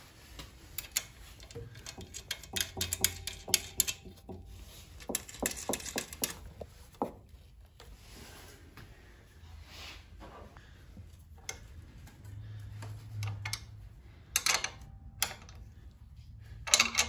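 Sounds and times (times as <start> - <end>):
metal parts clicking and tapping: 0.6 - 7.3, 13.2 - 15.8, 16.6 - 17.0.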